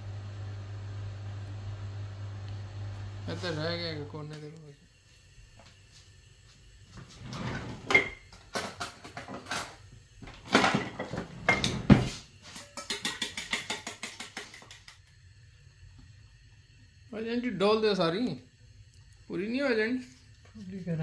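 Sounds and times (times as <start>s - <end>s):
fork beating egg in metal bowl: 12.4s - 15.1s.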